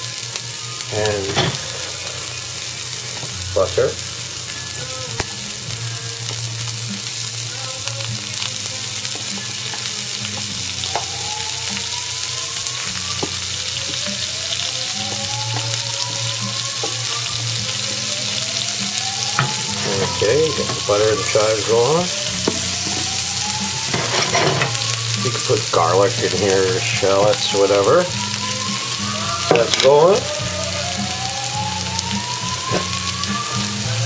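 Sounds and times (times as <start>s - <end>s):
butter sizzling in frying pan: 0.0s - 34.0s.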